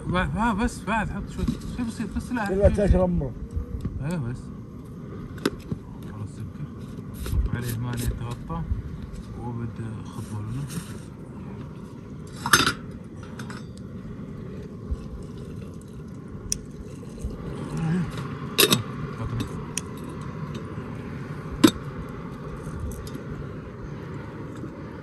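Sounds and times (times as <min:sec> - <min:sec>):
low background rumble: 0:00.0 - 0:25.0
metal teapot and utensils clinking: 0:18.6 - 0:20.7.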